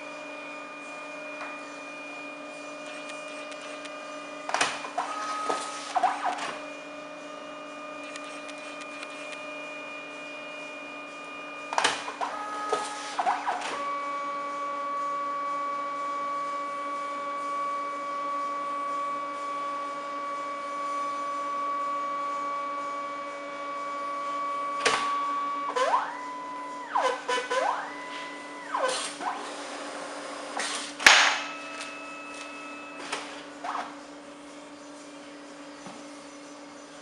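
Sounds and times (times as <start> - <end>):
printer motors whining: 0.0 - 37.0
printer clicking and clunking: 11.7 - 13.8.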